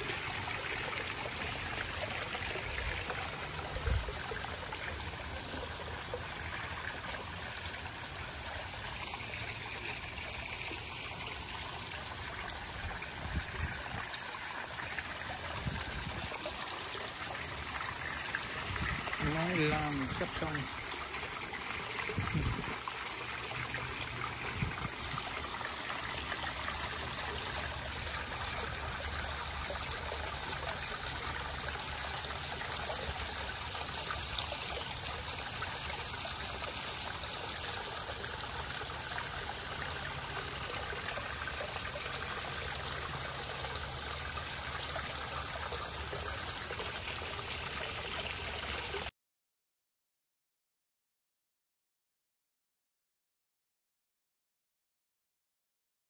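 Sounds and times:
fountain water trickling: 0.0s - 49.1s
waterfall falling into pond: 0.0s - 49.1s.

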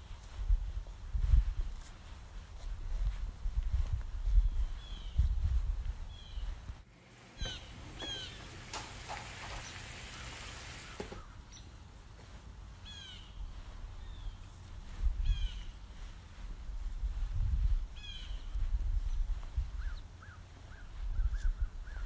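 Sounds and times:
bird calling: 6.1s - 11.7s, 12.8s - 13.4s
brief hiss: 6.9s - 11.3s.

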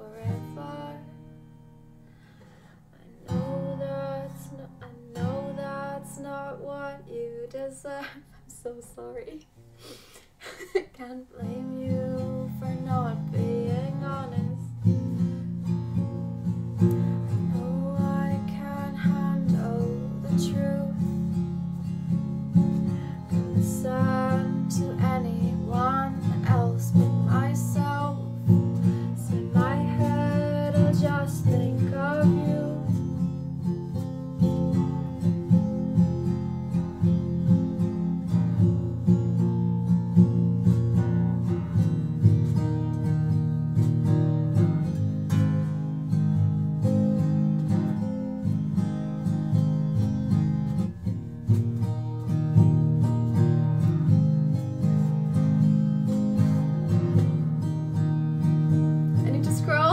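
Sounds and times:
woman singing: 0.0s - 1.4s, 2.9s - 9.5s, 10.8s - 14.9s, 16.9s - 21.5s, 23.2s - 33.6s, 59.1s - 59.9s
acoustic guitar strumming: 0.0s - 7.7s, 11.4s - 59.9s.

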